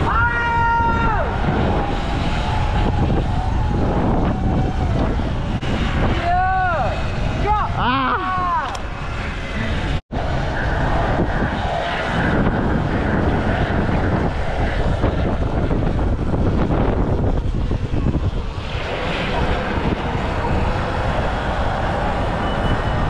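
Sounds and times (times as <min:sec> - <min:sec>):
road rumble: 0:00.0 - 0:23.0
wind on microphone: 0:00.0 - 0:23.0
faint wavering whine: 0:08.8 - 0:23.0.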